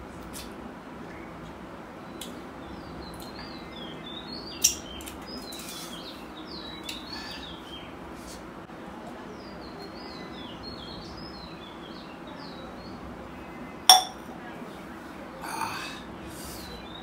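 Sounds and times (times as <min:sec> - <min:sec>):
small birds chirping: 0:01.0 - 0:08.4, 0:09.1 - 0:17.0
steel tumbler clinking on concrete: 0:13.9 - 0:14.3.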